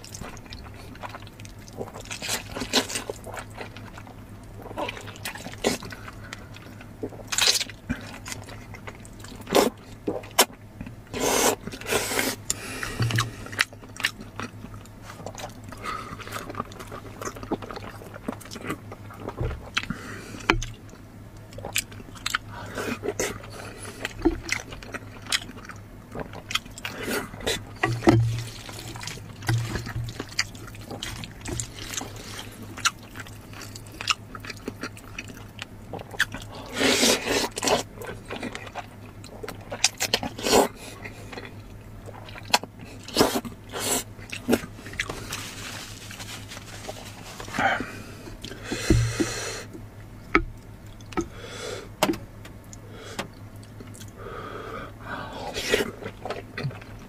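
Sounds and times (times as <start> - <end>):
crunching and chewing: 0.0 - 57.0
slurping noodles: 11.1 - 13.6, 36.6 - 37.9
low hum: 12.4 - 34.1.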